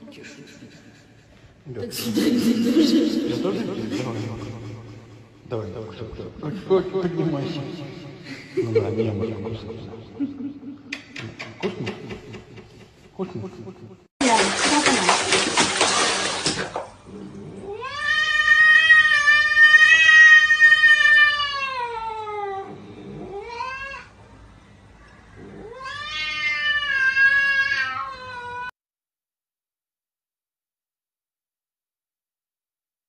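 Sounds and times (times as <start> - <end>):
cat yowling: 17.7 - 24.1, 25.6 - 28.7.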